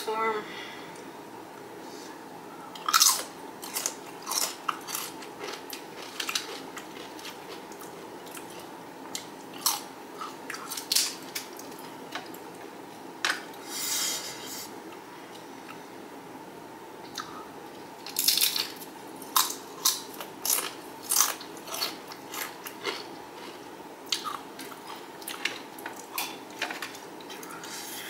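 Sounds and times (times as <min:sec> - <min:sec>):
crunching tortilla chips: 0:02.8 - 0:08.6, 0:09.2 - 0:11.8, 0:18.0 - 0:27.5.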